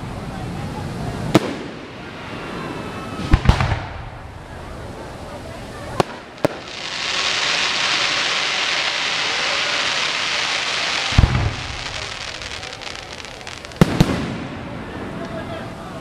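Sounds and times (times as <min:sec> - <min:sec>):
fireworks crackling hiss: 0:00.0 - 0:16.0
firework bangs with rumble: 0:01.3 - 0:02.0, 0:03.2 - 0:04.6, 0:11.0 - 0:14.9.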